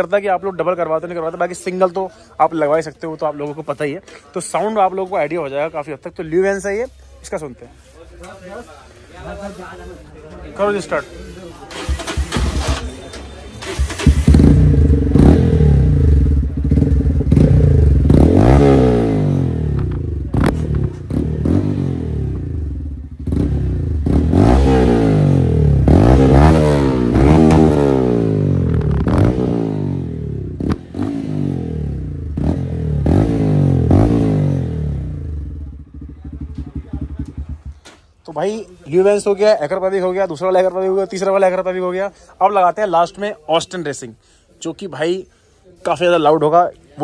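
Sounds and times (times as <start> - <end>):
motorcycle engine revving: 11.6 - 37.9
exhaust cracks: 11.7 - 22.5, 23.3 - 38.2.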